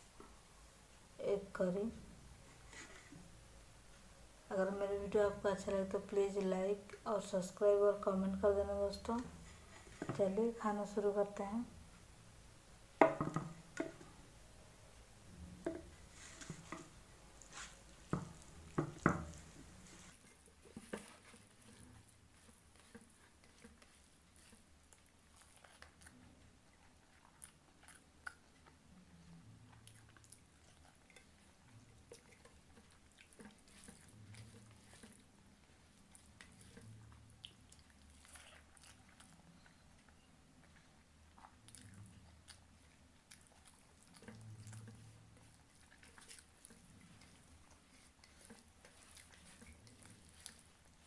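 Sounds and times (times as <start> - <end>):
fingers mixing rice: 15.3 - 28.5, 29.7 - 40.8, 41.4 - 51.0
wet chewing sounds: 15.3 - 51.0.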